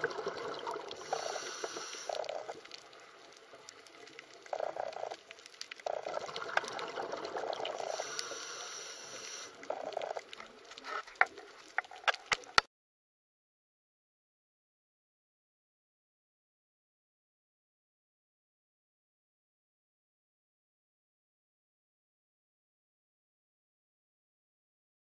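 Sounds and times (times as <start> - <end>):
water gurgling and bubbling: 0.0 - 2.7, 4.2 - 8.7, 9.4 - 12.1.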